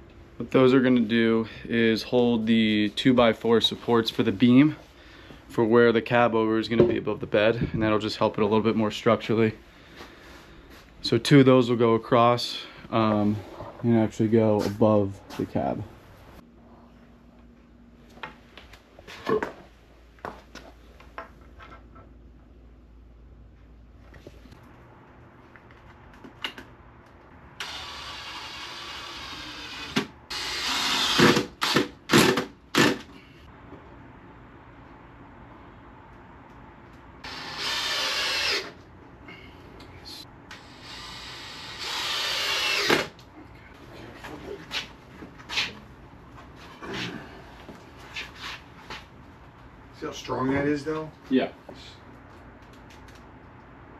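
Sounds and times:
power drill running: 27.6s - 33.0s, 37.2s - 38.8s, 40.5s - 43.1s.

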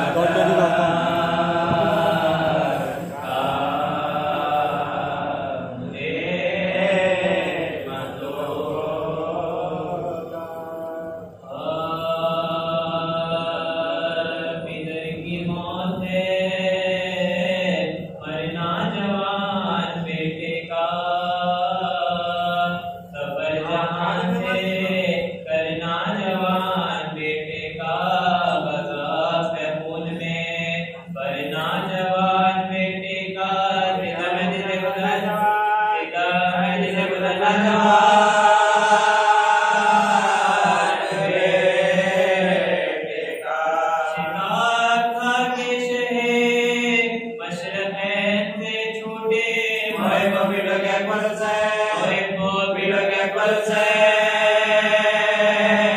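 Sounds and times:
man chanting: 0.0s - 55.9s.

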